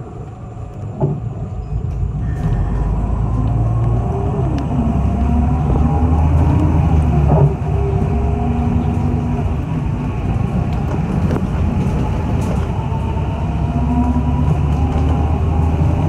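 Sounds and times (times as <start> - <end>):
bus engine rumble: 0.0 - 16.0.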